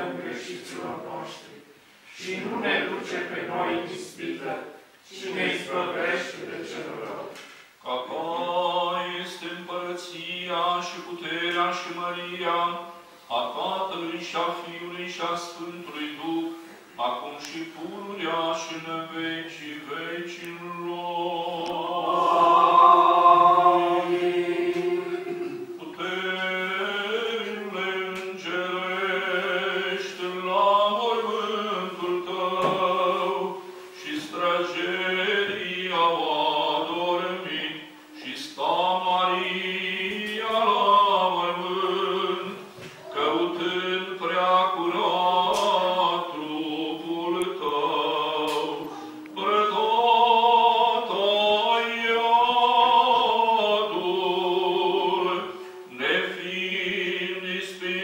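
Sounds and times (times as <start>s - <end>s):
men chanting: 17.8s - 58.0s.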